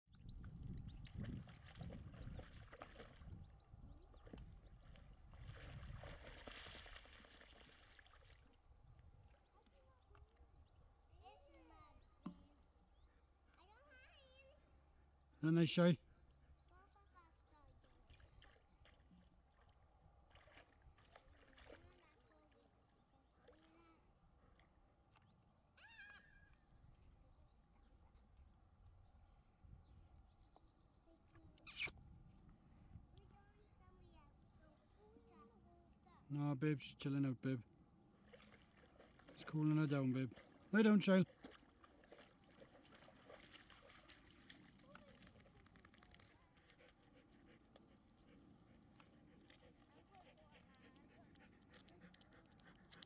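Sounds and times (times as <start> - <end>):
dog splashing in water: 1.0 - 3.4, 4.2 - 8.5, 18.1 - 22.6, 38.2 - 47.8
faint high chirps: 27.7 - 32.0.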